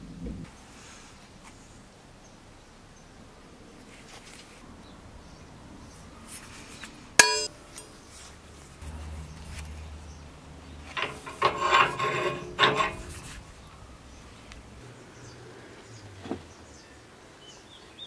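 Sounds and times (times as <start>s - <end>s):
metal-on-metal strike: 7.2s - 7.5s
rusted pivot creaking and squealing: 7.2s - 7.5s, 10.8s - 14.8s.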